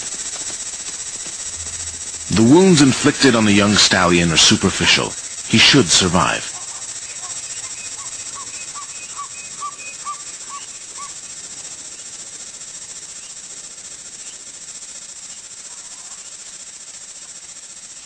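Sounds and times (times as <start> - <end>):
insect chorus: 0.0 - 18.0
bird calling: 6.5 - 11.3.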